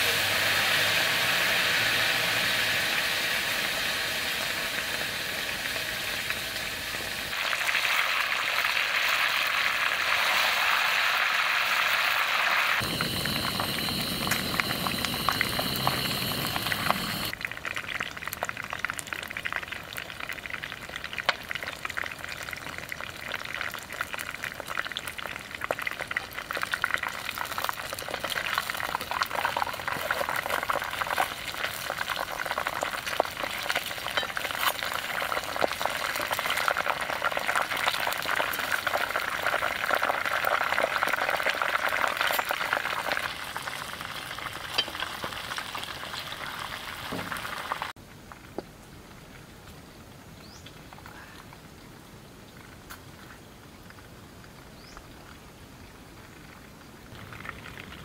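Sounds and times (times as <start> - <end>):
food sizzling and bubbling: 0.0 - 49.8, 51.6 - 58.0
high-pitched buzz: 12.8 - 17.3
low rumble: 12.8 - 17.3.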